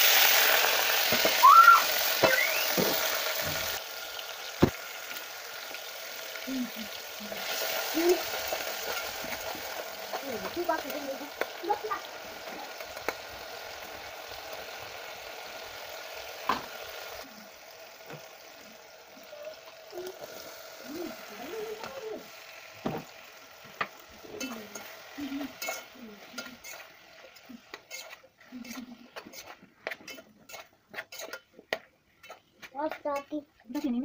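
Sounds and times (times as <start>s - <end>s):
tomatoes sizzling in oil: 0.0s - 34.0s
spoon clinking and scraping pot: 24.3s - 34.0s.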